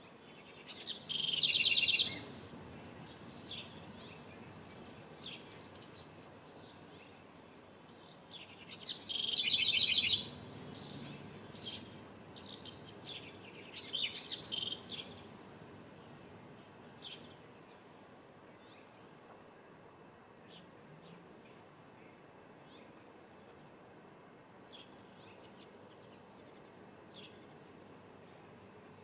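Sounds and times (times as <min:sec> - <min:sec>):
wren singing: 0:00.0 - 0:19.2.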